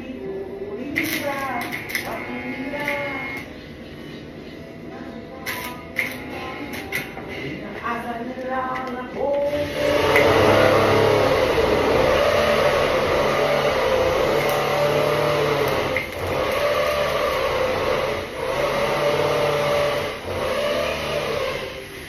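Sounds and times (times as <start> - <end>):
welding arc buzzing and crackling: 1.0 - 3.6, 5.4 - 7.2, 9.4 - 22.0.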